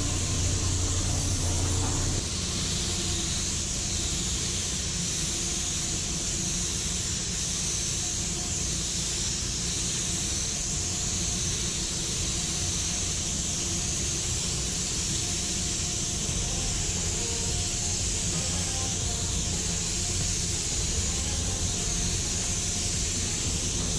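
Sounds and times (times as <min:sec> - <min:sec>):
steady low rumble: 0:00.0 - 0:04.2
spray gun hissing: 0:00.0 - 0:23.9.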